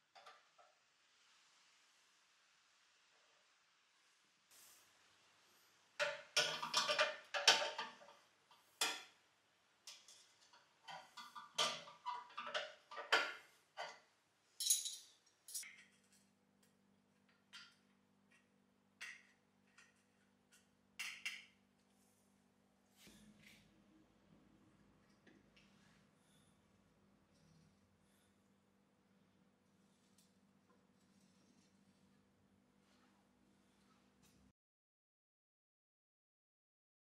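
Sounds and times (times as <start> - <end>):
spanner clinking on metal: 14.6 - 16.2.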